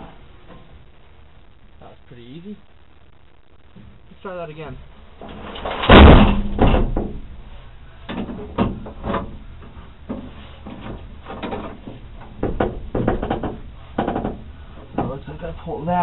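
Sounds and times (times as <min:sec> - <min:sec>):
loud metal clatters: 0:05.3 - 0:07.2.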